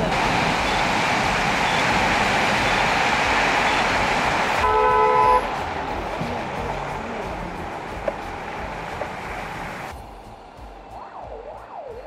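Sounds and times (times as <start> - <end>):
street traffic noise: 0.0 - 12.0
car horn honk: 4.6 - 5.5.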